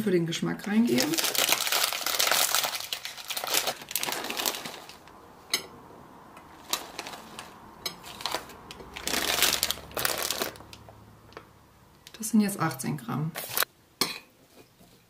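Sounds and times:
plastic snack bag crinkling: 0.6 - 5.1, 6.5 - 10.9.

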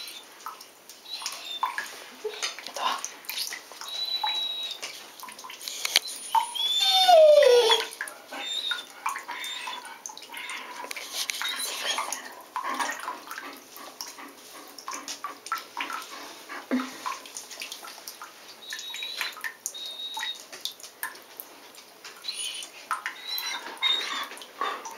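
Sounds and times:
bathtub water splashing: 0.0 - 24.9
dog whining: 3.9 - 4.8, 6.0 - 9.8, 11.4 - 12.2, 18.8 - 20.4, 22.2 - 24.9.

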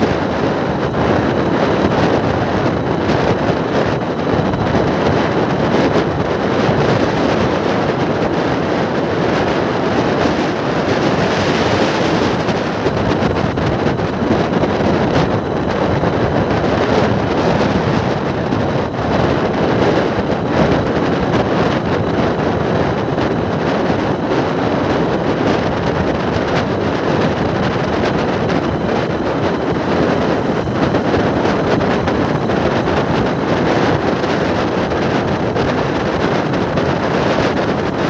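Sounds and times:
road noise: 0.0 - 38.0
wind rushing over microphone: 0.0 - 38.0.

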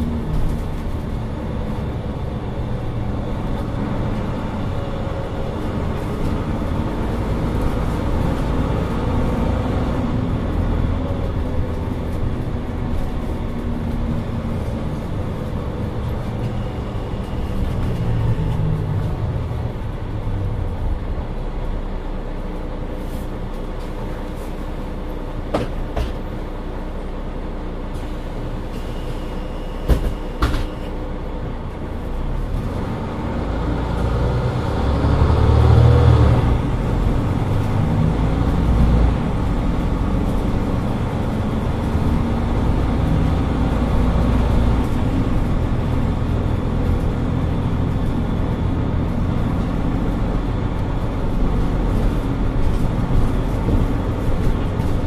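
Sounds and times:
bus diesel engine running: 0.0 - 55.0.

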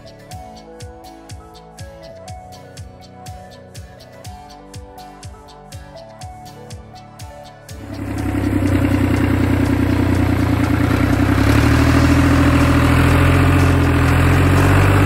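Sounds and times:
tractor diesel engine running: 7.8 - 15.0.

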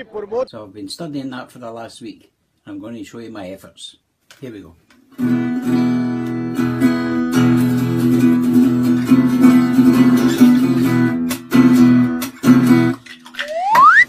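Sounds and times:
acoustic guitar strumming: 5.2 - 12.9.

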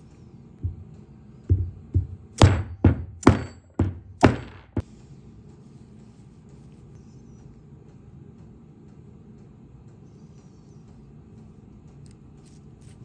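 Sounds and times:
mallet knocking on metal: 1.5 - 4.8.

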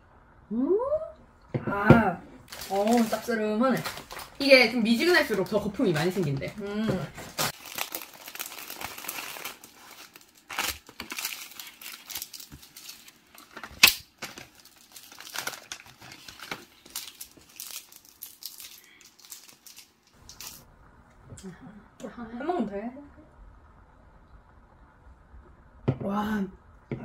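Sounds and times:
plastic packaging crinkling: 2.4 - 20.7.

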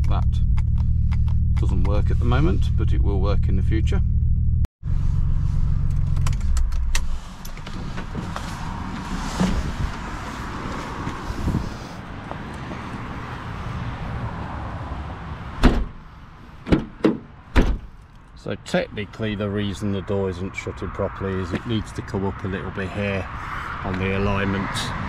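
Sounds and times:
rustling and movement: 4.9 - 13.0
car door shut thud: 15.6 - 16.0, 16.7 - 17.9.

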